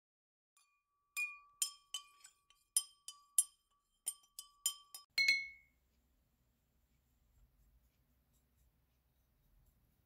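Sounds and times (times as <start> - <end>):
glass ringing: 0.6 - 5.7
paintbrush clinking on glass: 0.6 - 5.8.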